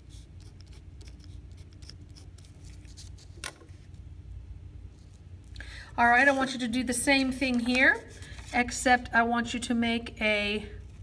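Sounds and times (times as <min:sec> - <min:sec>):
pencil scratching on paper: 0:00.0 - 0:02.5.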